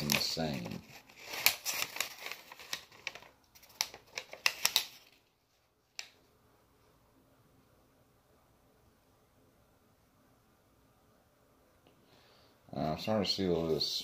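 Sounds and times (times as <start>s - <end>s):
paper rustling: 0.0s - 5.3s.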